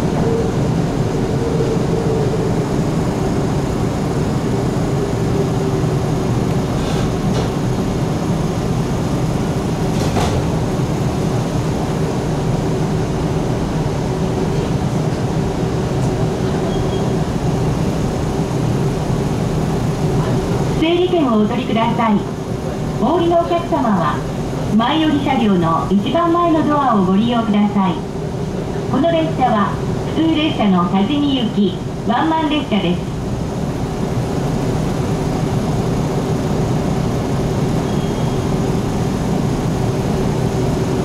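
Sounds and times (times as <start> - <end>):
wheels rumbling on rail: 0.0 - 32.4.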